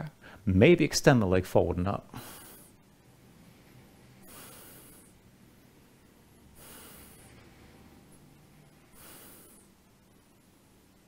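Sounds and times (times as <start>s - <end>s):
man breathing slowly: 2.1s - 5.3s, 6.4s - 9.9s.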